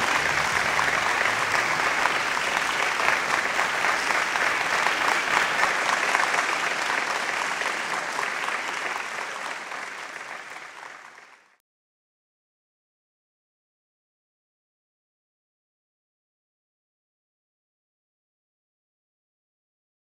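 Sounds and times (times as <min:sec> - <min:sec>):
crowd applauding: 0:00.0 - 0:11.6.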